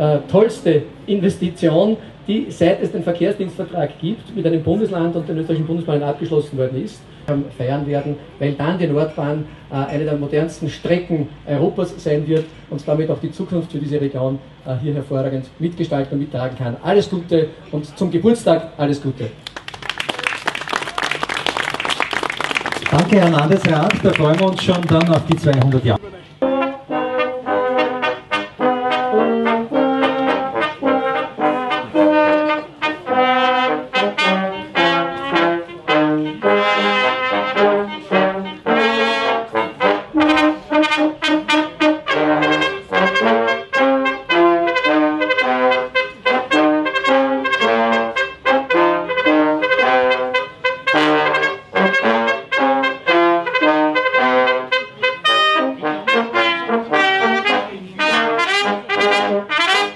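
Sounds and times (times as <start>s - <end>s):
brass band music: 22.5s - 59.9s.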